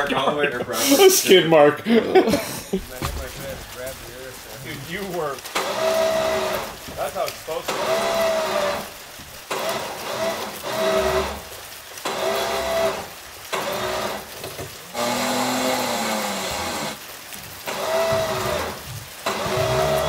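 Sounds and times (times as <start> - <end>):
electric winch motor whining: 4.9 - 20.0.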